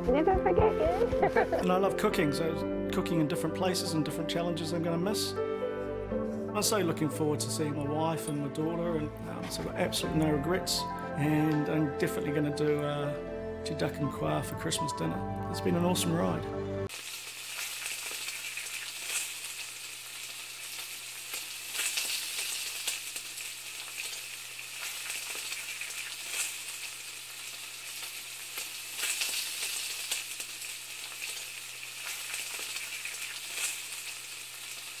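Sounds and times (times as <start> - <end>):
food frying in a pan: 16.9 - 35.0.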